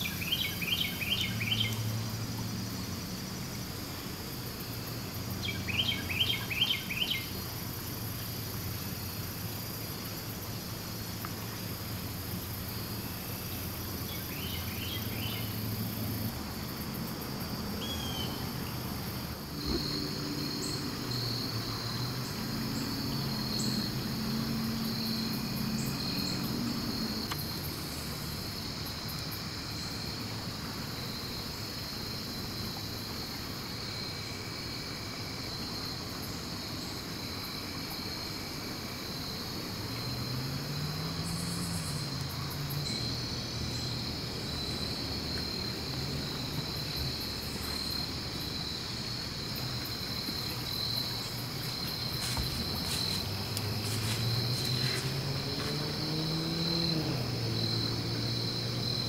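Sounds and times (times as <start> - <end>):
crickets and insects chirping: 0.0 - 59.0.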